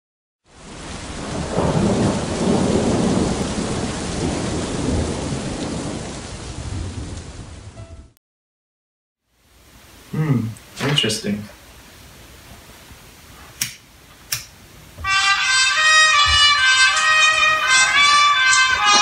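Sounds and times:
rain: 0:00.4 - 0:08.2, 0:09.2 - 0:19.0
rolling thunder: 0:00.7 - 0:07.8.

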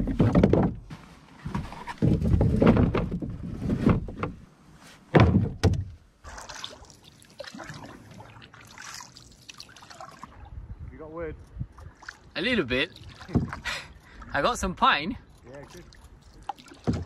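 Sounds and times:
branches thudding against canoe hull: 0:00.0 - 0:04.4, 0:05.1 - 0:06.0, 0:13.2 - 0:13.7, 0:16.5 - 0:17.0
water lapping around canoe: 0:06.2 - 0:10.6, 0:11.6 - 0:14.6, 0:15.2 - 0:17.0.

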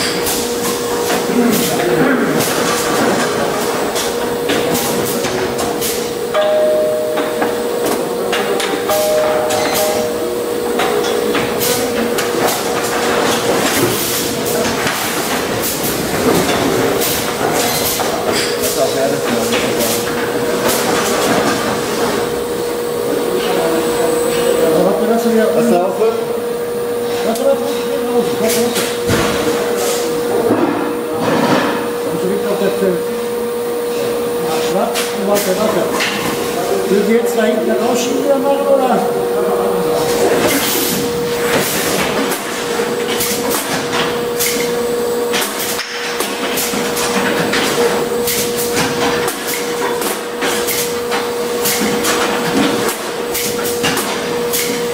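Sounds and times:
packing machine drone and whine: 0:00.0 - 0:54.9
machine hisses and clicks: 0:40.5 - 0:54.9.

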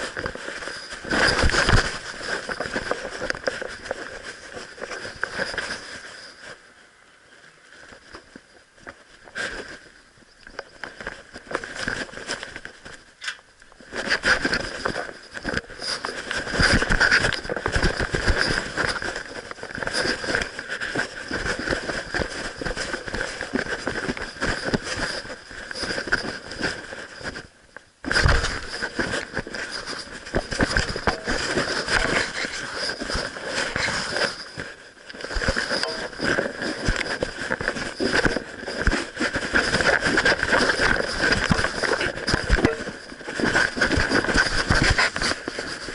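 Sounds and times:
camera rubbing against dog fur: 0:28.1 - 0:45.9.

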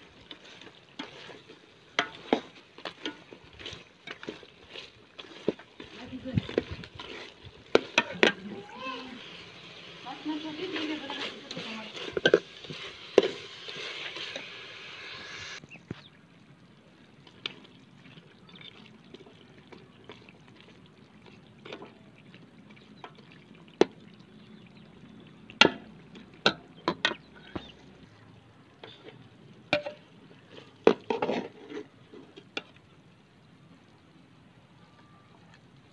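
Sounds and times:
wet slopping of stirred gravy: 0:00.0 - 0:14.5, 0:17.0 - 0:33.0
steady hiss: 0:08.7 - 0:15.6.

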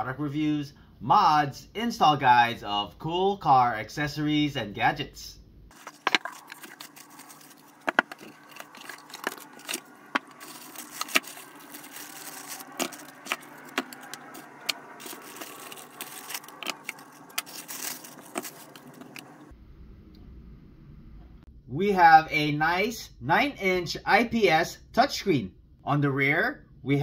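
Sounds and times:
foam and plastic bags rustling: 0:05.7 - 0:19.5.

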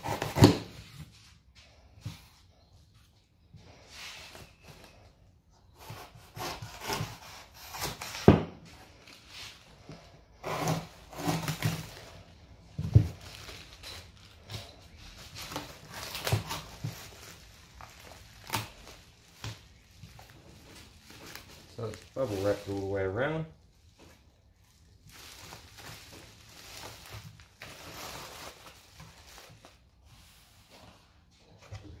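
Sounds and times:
knife cutting cardboard: 0:00.0 - 0:01.0, 0:05.7 - 0:08.6, 0:10.4 - 0:12.0
cardboard rustling and folding: 0:00.0 - 0:32.0.

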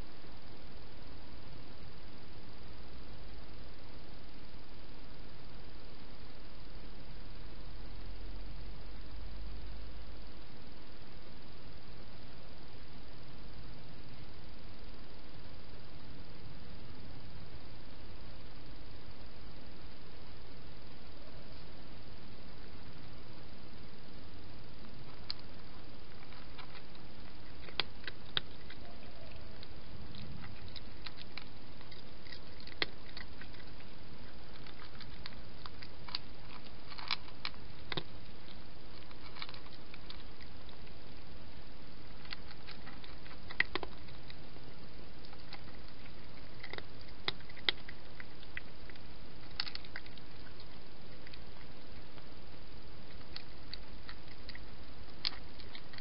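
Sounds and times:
cat crunching dry food: 0:24.7 - 0:56.0.

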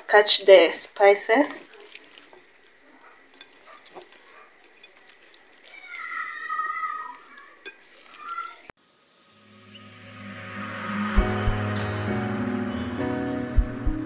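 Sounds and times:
animal's high-pitched wavering cry: 0:05.7 - 0:07.6.

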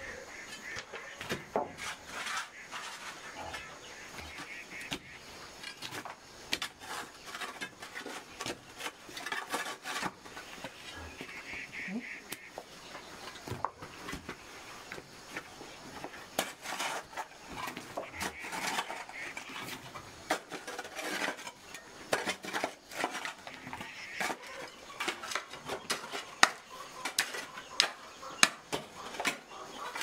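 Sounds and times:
metal tools striking soil and stones: 0:00.6 - 0:11.2, 0:16.0 - 0:30.0.

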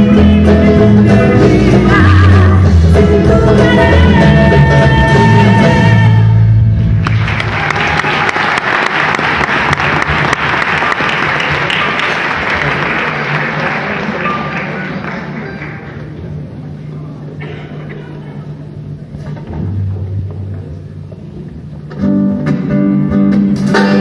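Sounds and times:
audience applauding: 0:07.0 - 0:16.3.

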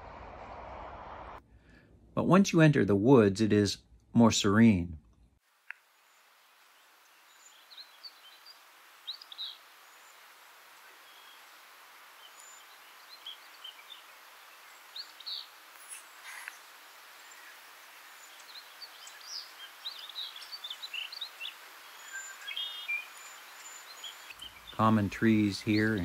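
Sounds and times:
faint steady hiss: 0:00.0 - 0:26.0
songbirds singing: 0:06.0 - 0:26.0.

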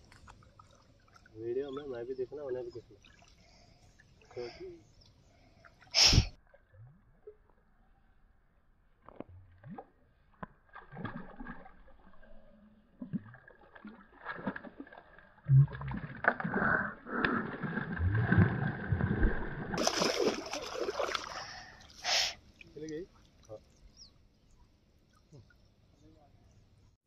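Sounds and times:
shallow water splashing: 0:00.0 - 0:04.6, 0:09.1 - 0:25.8.

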